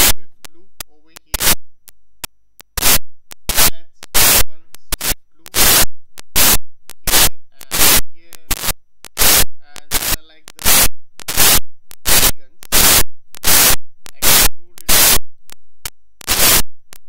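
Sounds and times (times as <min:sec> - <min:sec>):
static noise bursts: 0:00.0 - 0:17.0.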